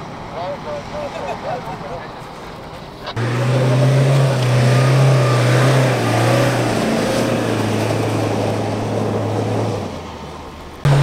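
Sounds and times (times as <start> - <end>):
wheels churning sand: 0.0 - 11.0
engine at high revs under load: 3.1 - 11.0.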